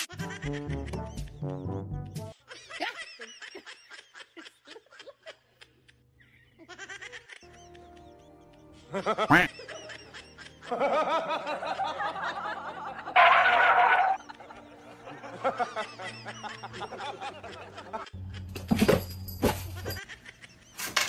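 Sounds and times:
person laughing: 8.8s - 12.4s.

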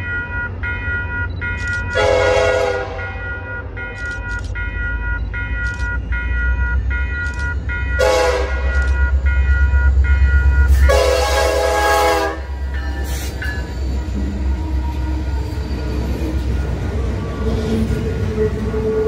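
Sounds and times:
diesel locomotive engines rumbling: 0.0s - 19.0s
train horn blasts: 1.9s - 3.5s, 8.0s - 8.8s, 10.7s - 12.6s.

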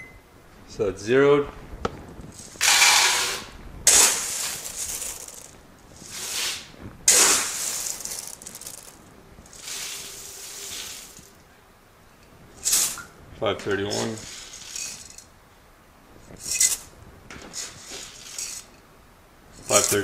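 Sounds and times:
seeds poured into plastic pitcher: 2.4s - 11.4s, 12.6s - 13.0s, 13.9s - 15.3s
seeds scooped from plastic tub: 2.4s - 11.4s, 13.7s - 15.2s.

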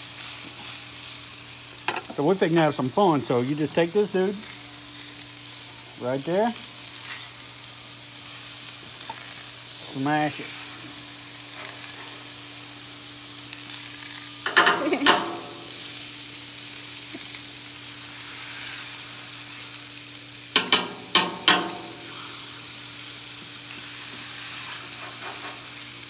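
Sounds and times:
meat sizzling on a griddle: 0.0s - 26.0s
metal clanks and scrapes on griddle: 1.8s - 2.2s, 11.5s - 12.3s, 14.0s - 16.0s, 20.5s - 22.4s, 23.7s - 26.0s.

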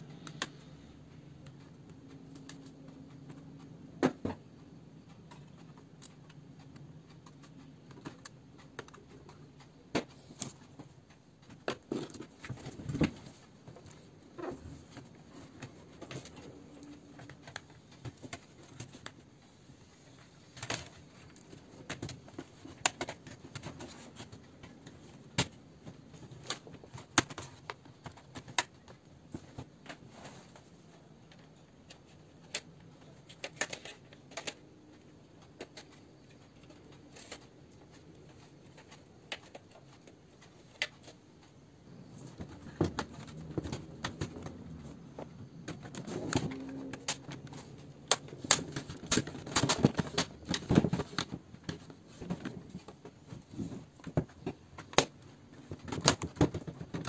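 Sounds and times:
plastic clicks and snaps: 31.2s - 41.5s, 42.4s - 53.0s, 54.0s - 57.0s.

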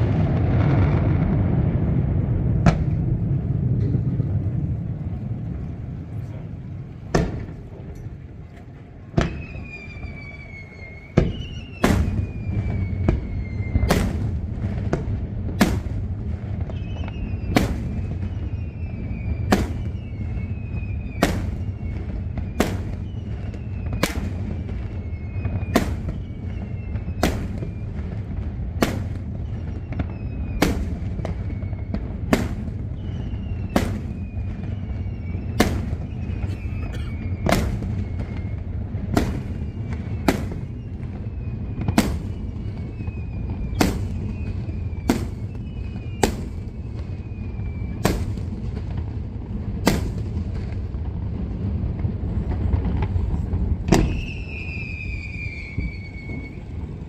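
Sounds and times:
low rumble: 0.0s - 9.2s
firework bangs: 0.0s - 57.0s
whistles falling in pitch: 9.2s - 14.2s, 16.6s - 28.2s, 29.4s - 48.4s, 54.0s - 56.8s.

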